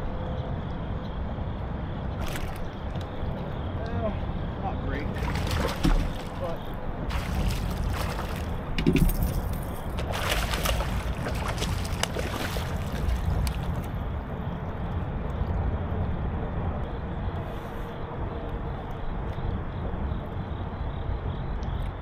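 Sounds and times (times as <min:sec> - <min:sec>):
steady low rumble: 0:00.0 - 0:21.4
fish splashing in water: 0:02.2 - 0:02.8, 0:05.1 - 0:14.0.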